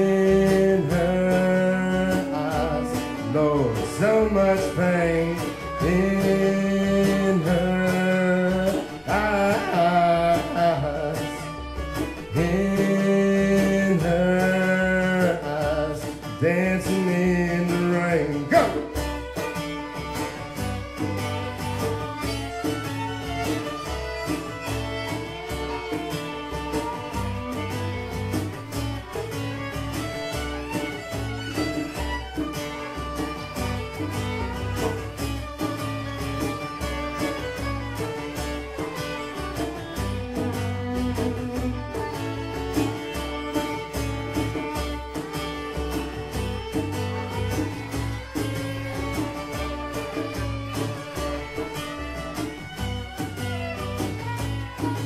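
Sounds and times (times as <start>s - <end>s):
acoustic guitar strumming: 0.0s - 55.0s
violin melody: 0.0s - 55.0s.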